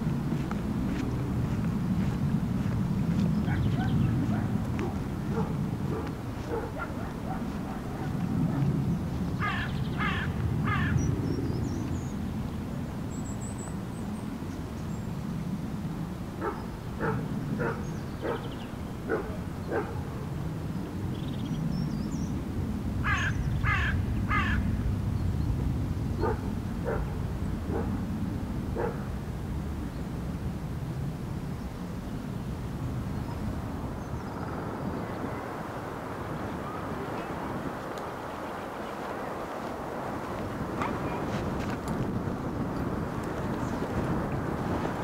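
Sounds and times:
crows cawing: 9.4s - 11.1s, 23.0s - 24.7s.

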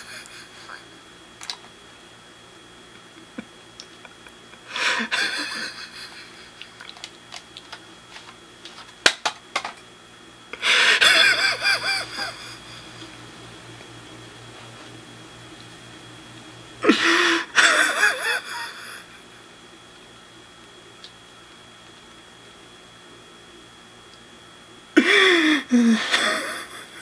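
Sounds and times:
man laughing muffled: 0.0s - 1.0s, 3.0s - 7.0s, 10.6s - 13.3s, 16.8s - 19.2s, 25.0s - 27.0s.

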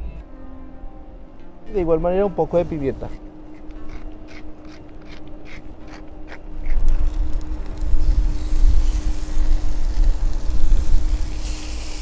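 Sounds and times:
wind buffeting microphone: 2.9s - 12.0s
chicken sizzling on grill pan: 7.8s - 12.0s.

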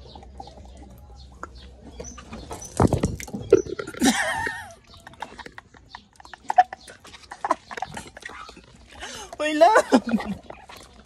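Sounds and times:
person gulping drink: 2.8s - 9.4s.

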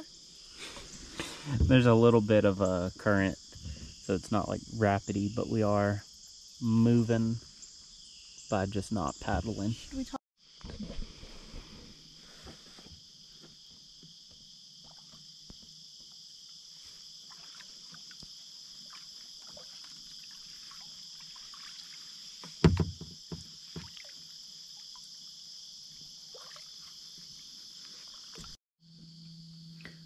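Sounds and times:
insect chorus: 0.0s - 30.0s
paddle drips and splashes: 17.1s - 25.2s, 26.0s - 27.2s, 27.9s - 28.6s
knock: 22.6s - 23.9s.

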